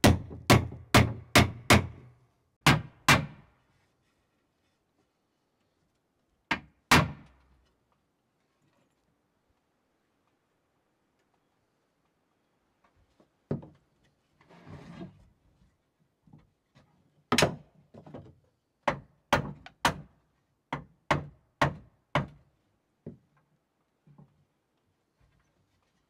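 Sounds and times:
hammer driving nails into wood: 0:00.0 - 0:03.5, 0:06.5 - 0:07.3, 0:20.7 - 0:22.4.

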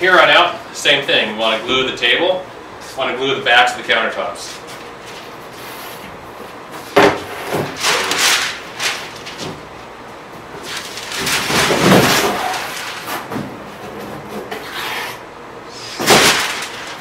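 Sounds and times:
hardboard sheet rumbling: 0:10.6 - 0:15.2, 0:16.0 - 0:17.0.

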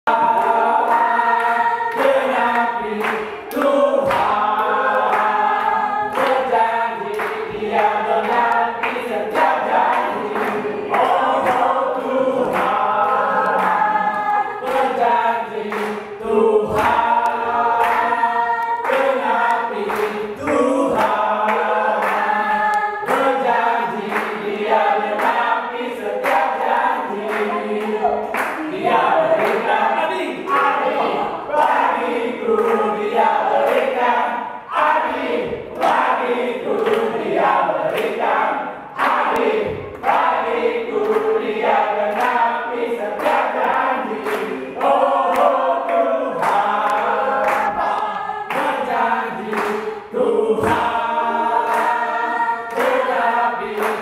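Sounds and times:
congregation singing: 0:00.0 - 0:54.0
rhythmic hand clapping: 0:00.0 - 0:54.0.

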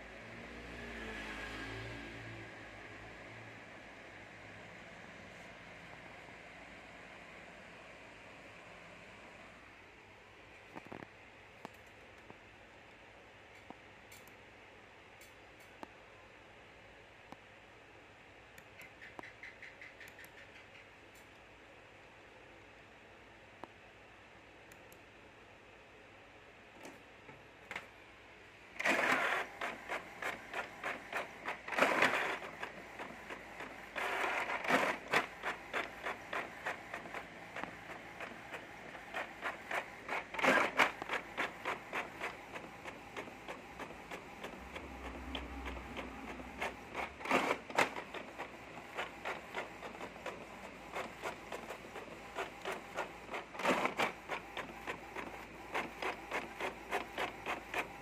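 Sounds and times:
printer carriage pulsing: 0:28.8 - 0:58.0
printer grinding bursts: 0:28.8 - 0:58.0.

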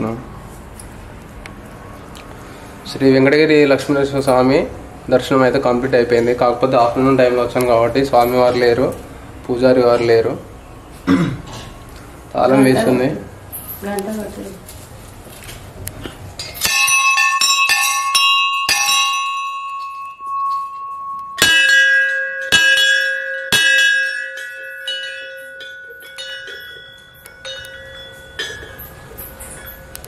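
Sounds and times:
hanging temple bells ringing: 0:16.4 - 0:30.0
lower-pitched bell ringing: 0:16.5 - 0:30.0.

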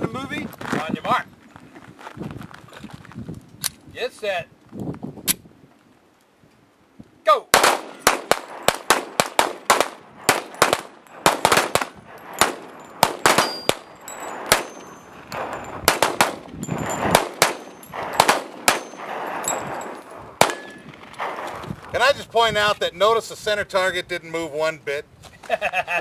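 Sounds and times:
handgun shots: 0:07.6 - 0:19.6, 0:20.4 - 0:21.6
bullets pinging on steel targets: 0:07.8 - 0:21.0.

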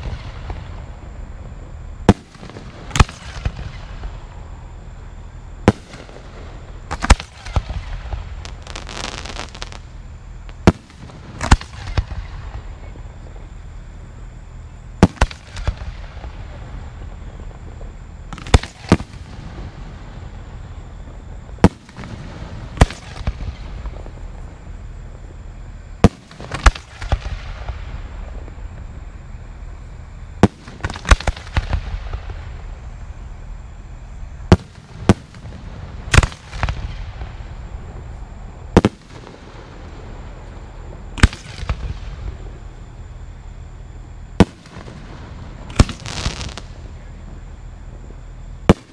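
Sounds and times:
fireworks bangs: 0:00.0 - 0:04.7, 0:05.6 - 0:13.6, 0:14.9 - 0:25.4, 0:26.0 - 0:42.8, 0:44.3 - 0:48.9
fireworks crackle: 0:00.0 - 0:43.4, 0:44.3 - 0:48.9.

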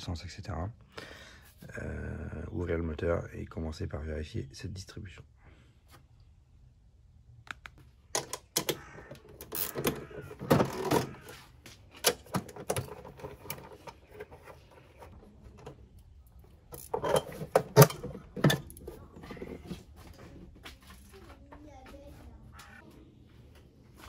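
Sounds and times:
metal clicks and rattles: 0:12.0 - 0:19.0.

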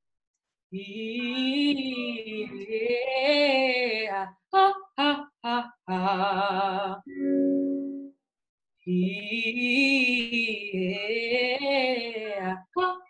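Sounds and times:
women singing with vibrato: 0:00.8 - 0:07.6, 0:08.9 - 0:13.0
electric keyboard note: 0:07.1 - 0:08.2.

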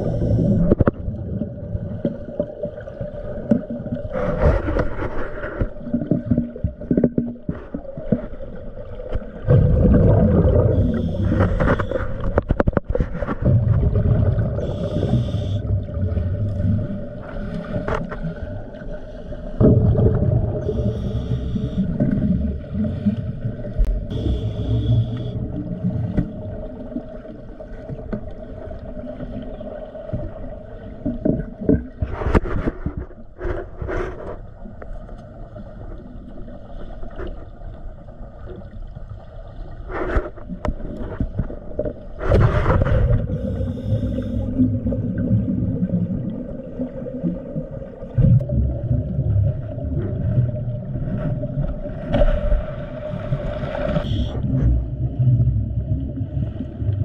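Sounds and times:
diver breathing underwater: 0:00.0 - 0:00.9, 0:09.5 - 0:13.4, 0:14.2 - 0:26.2, 0:42.2 - 0:45.0, 0:52.7 - 0:54.8
exhaled bubbles rushing: 0:00.0 - 0:18.9, 0:19.5 - 0:21.0, 0:41.5 - 0:57.0.

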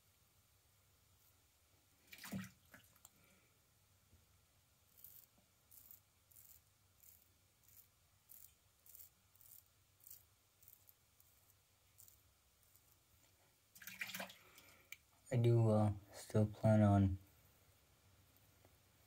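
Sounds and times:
razor scraping stubble: 0:04.9 - 0:13.0.

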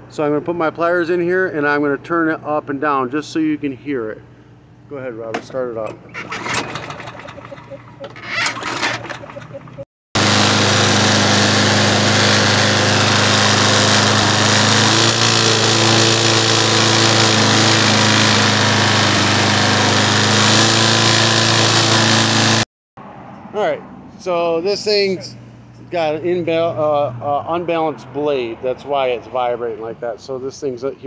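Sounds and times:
lawn mower engine running: 0:06.0 - 0:22.6.

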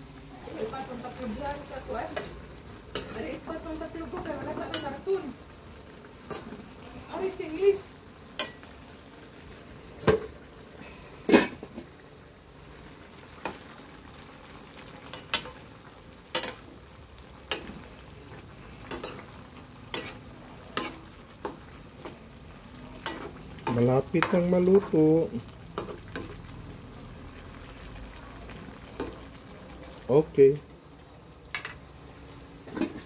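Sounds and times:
low steady sizzle: 0:00.0 - 0:33.0
metal ladle scraping a wok: 0:19.9 - 0:21.0.

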